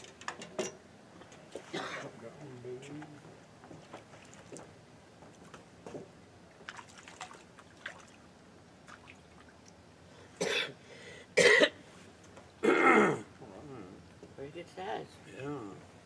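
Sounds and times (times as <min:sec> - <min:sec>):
person coughing: 0:10.4 - 0:10.7, 0:11.4 - 0:11.8, 0:12.6 - 0:13.3.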